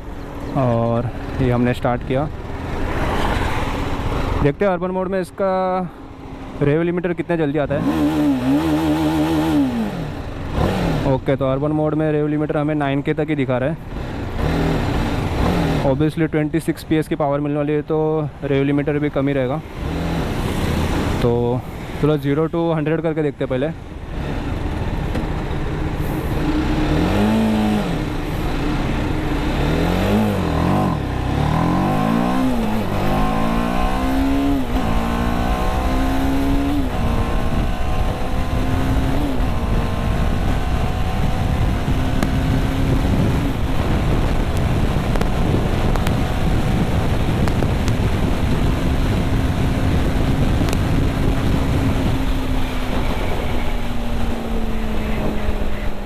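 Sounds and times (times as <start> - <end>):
motorcycle engine accelerating: 7.6 - 11.4, 13.8 - 16.0, 19.6 - 22.0, 24.0 - 56.0
wind on microphone: 26.3 - 55.8.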